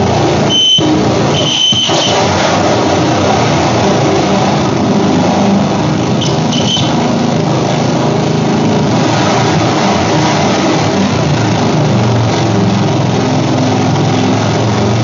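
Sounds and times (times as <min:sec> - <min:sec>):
grinding rattle with low drones: 0:00.0 - 0:15.0
brief high squeaks: 0:06.2 - 0:07.0.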